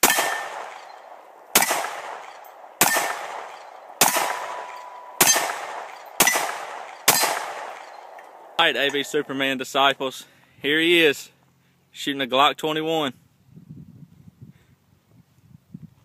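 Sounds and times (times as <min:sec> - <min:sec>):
handgun shots echoing: 0:00.0 - 0:09.5
metallic ring of steel targets: 0:00.0 - 0:09.6.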